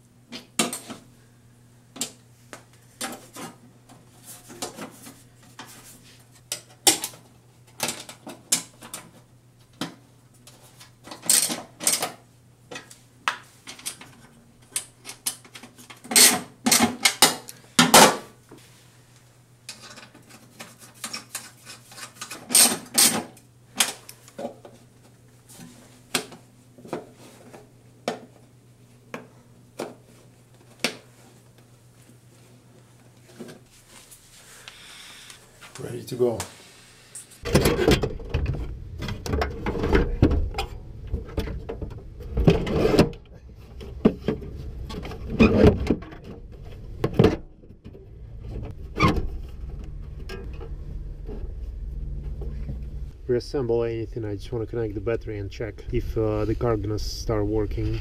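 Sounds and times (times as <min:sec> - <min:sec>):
low steady hum: 0:00.0 - 0:58.0.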